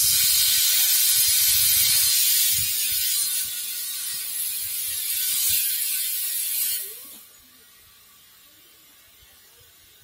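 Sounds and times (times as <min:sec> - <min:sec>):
compressed air hissing into tyre: 0:00.0 - 0:07.4.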